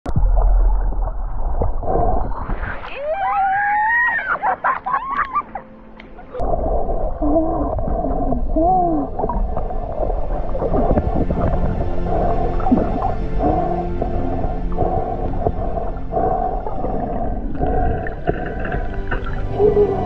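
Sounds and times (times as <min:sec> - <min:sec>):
water rushing: 0:00.2 - 0:20.0
whale song moans: 0:07.2 - 0:20.0.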